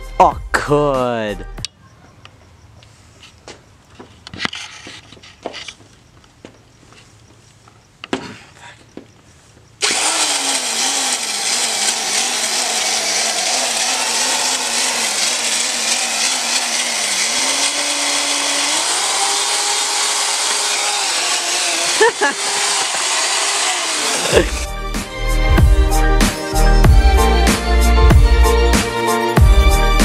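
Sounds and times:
power tool rushing over motor hum: 0:09.8 - 0:27.6.

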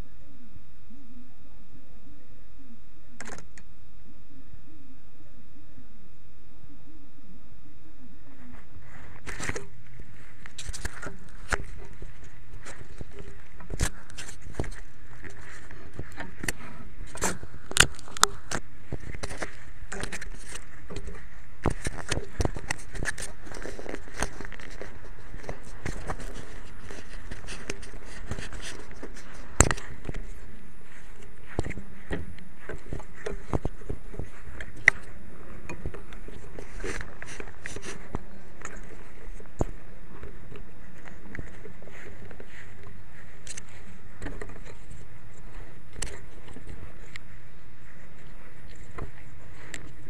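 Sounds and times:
steady background noise: 0:00.0 - 0:50.0
sharp click: 0:03.2 - 0:03.7.

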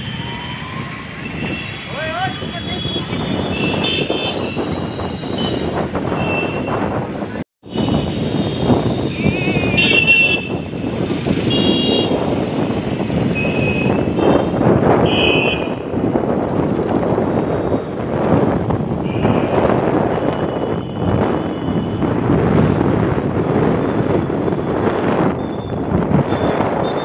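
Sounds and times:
street traffic rush: 0:00.0 - 0:27.0
vehicle horn toots: 0:02.4 - 0:06.7, 0:07.8 - 0:10.6, 0:11.4 - 0:12.2, 0:13.4 - 0:15.8, 0:19.0 - 0:19.6.

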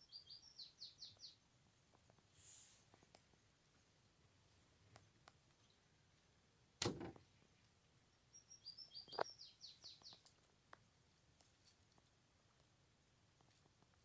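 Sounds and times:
bird chirping: 0:00.0 - 0:01.7, 0:04.9 - 0:06.0, 0:07.2 - 0:10.4
short thump: 0:06.8 - 0:07.2.

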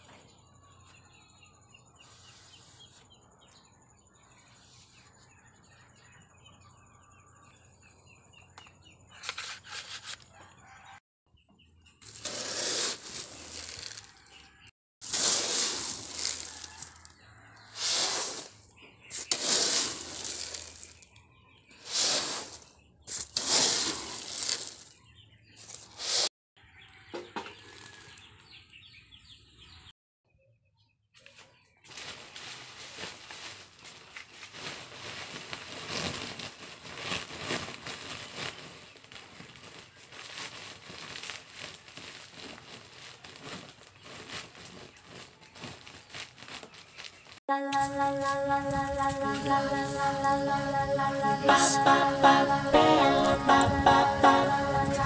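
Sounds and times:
plastic sacks rustling and crinkling: 0:12.0 - 0:14.2, 0:15.0 - 0:17.0, 0:19.2 - 0:21.1, 0:22.1 - 0:25.0, 0:31.8 - 0:47.4.

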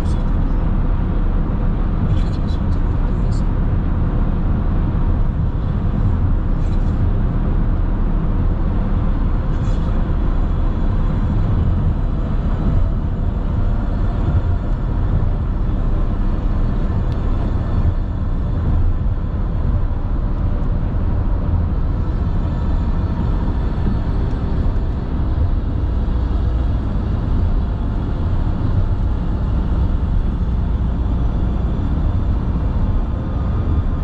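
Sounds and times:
car interior road rumble: 0:00.0 - 0:34.0.

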